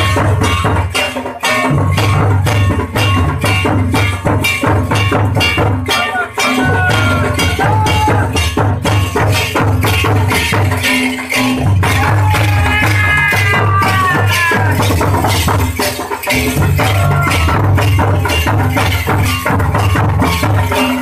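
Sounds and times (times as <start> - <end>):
fast drum beat: 0.0 - 21.0.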